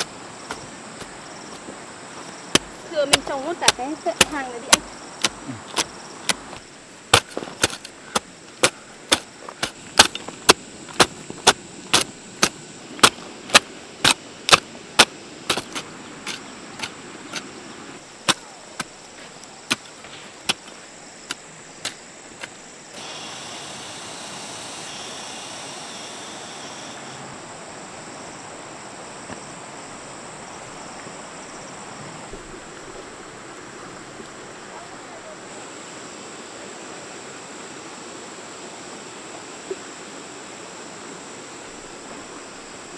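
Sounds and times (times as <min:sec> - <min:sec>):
steady hiss: 0:00.0 - 0:42.9
hoe chopping into soil: 0:02.5 - 0:17.5, 0:18.2 - 0:22.6.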